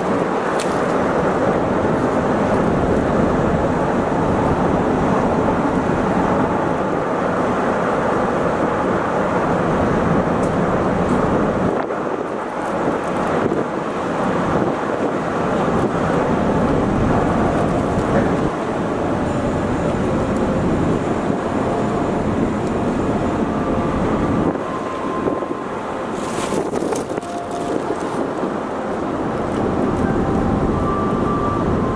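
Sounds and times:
ship engines and propeller wash: 0.0s - 31.9s
wind on microphone: 0.0s - 31.9s.

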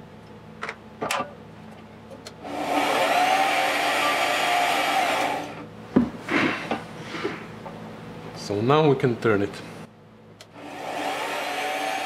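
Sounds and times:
metal lathe motor whining: 2.4s - 5.6s, 10.5s - 12.0s.

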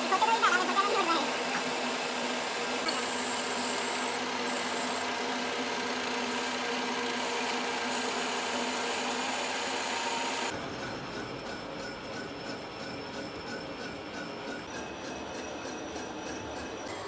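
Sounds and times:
power tool grinding metal: 0.0s - 10.5s.

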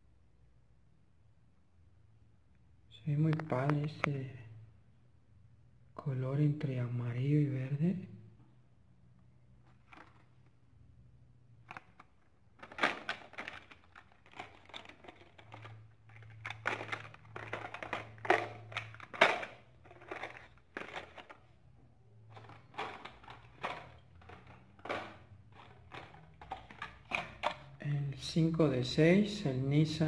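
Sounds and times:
plastic packaging clicks and crinkles: 9.6s - 10.6s, 11.6s - 21.6s, 22.3s - 27.8s.

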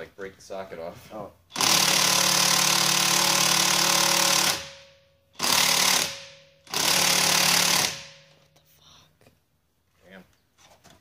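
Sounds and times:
impact wrench hammering: 1.5s - 8.5s.

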